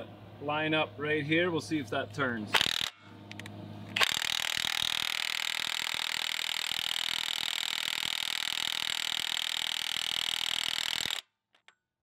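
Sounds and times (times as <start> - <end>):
impact wrench hammering: 2.6 - 3.0, 4.0 - 11.2.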